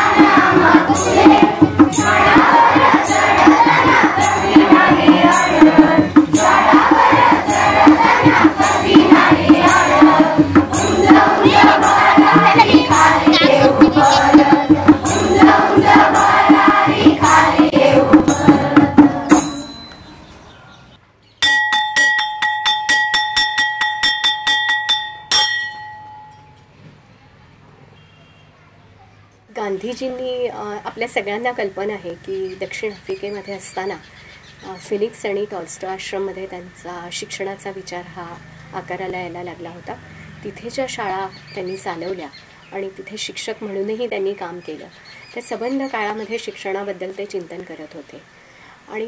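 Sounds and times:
group of voices singing: 0:00.0 - 0:19.7
bell struck rapidly: 0:00.0 - 0:20.2, 0:21.4 - 0:26.6
percussion beat: 0:00.0 - 0:20.2, 0:21.4 - 0:26.6.

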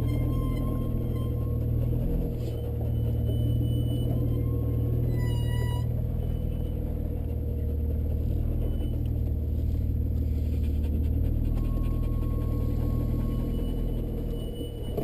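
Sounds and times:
car engine running at low revs: 0:00.0 - 0:15.0.

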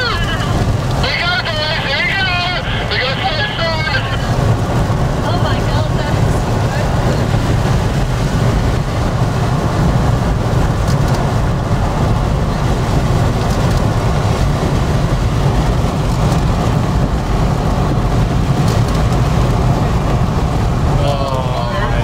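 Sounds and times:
rain on windshield: 0:00.0 - 0:22.0
wind and road noise in car: 0:00.0 - 0:22.0.

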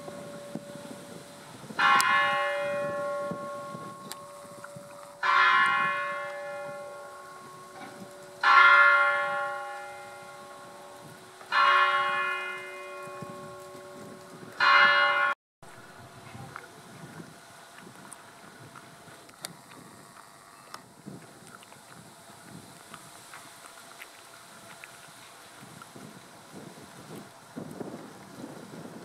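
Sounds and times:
church bell tolling: 0:00.0 - 0:15.4.

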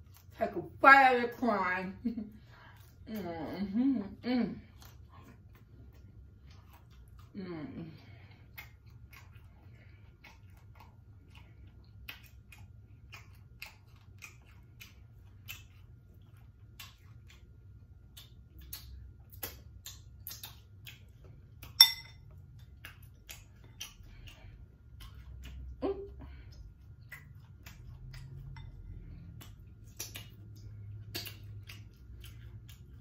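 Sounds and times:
chewing and mouth smacking: 0:00.0 - 0:00.4, 0:02.3 - 0:03.3, 0:04.6 - 0:33.0
low steady hum: 0:00.0 - 0:33.0
metal utensil clinking on dish: 0:21.8 - 0:22.2.

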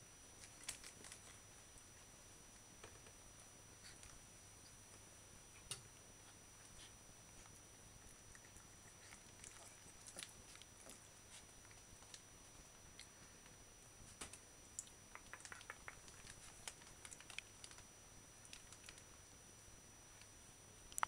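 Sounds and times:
puppies moving clicks and rustles: 0:00.4 - 0:01.4, 0:06.6 - 0:13.1, 0:14.1 - 0:17.8, 0:18.4 - 0:19.1.

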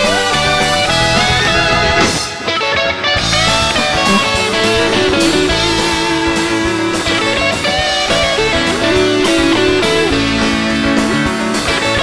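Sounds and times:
electric guitar: 0:00.0 - 0:12.0
drum kit and cymbal hits: 0:03.2 - 0:12.0.

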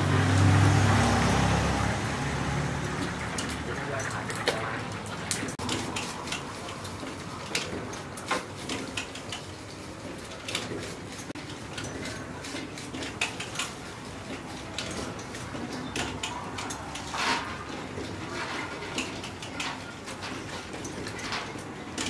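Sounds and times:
steady background din: 0:02.4 - 0:09.3.

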